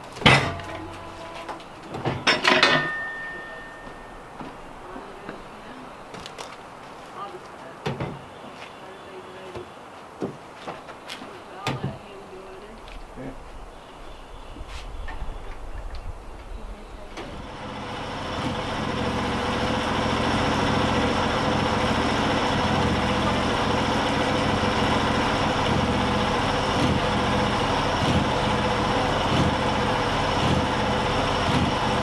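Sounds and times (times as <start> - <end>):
small gasoline engine running: 17.3 - 32.0.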